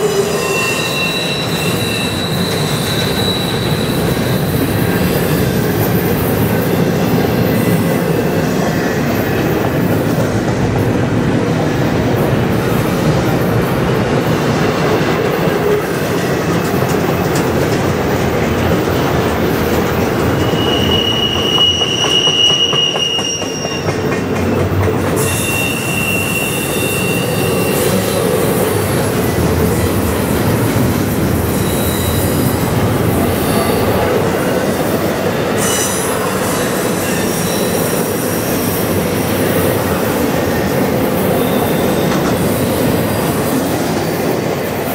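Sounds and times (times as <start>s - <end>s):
high wheel squeal: 0.0s - 7.8s, 20.3s - 24.2s, 25.1s - 29.3s, 31.5s - 34.1s, 35.5s - 39.6s, 41.2s - 43.0s
freight train wheels rumbling: 0.0s - 44.9s.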